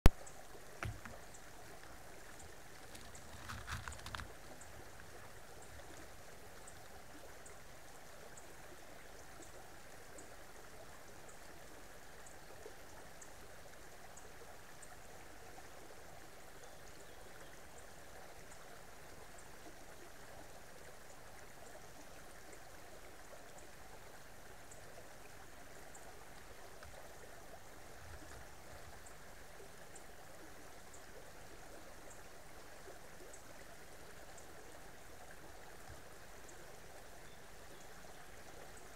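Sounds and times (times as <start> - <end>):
creek water flowing: 0.0 - 38.9.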